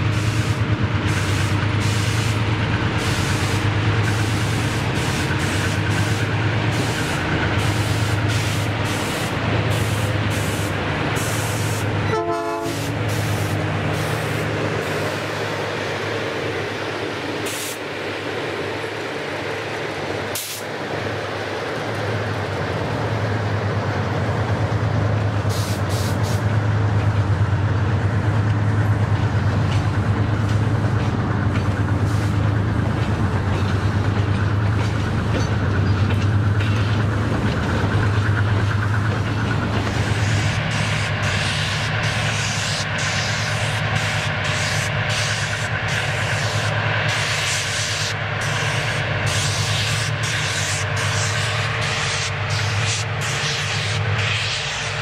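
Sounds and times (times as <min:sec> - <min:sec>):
steel wheels rumbling on rail: 0:00.0 - 0:55.0
wheels clanking over rail joints: 0:26.4 - 0:47.2.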